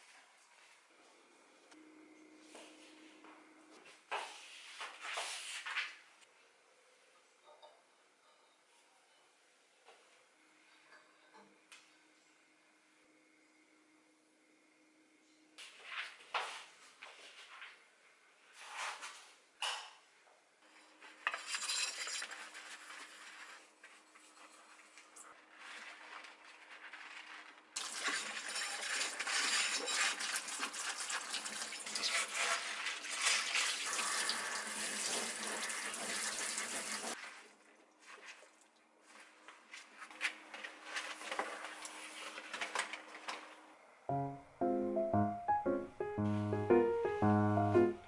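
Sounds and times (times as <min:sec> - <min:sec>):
faint steady hum: 0:00.2 - 0:04.1
tap water running into a sink: 0:27.8 - 0:37.2.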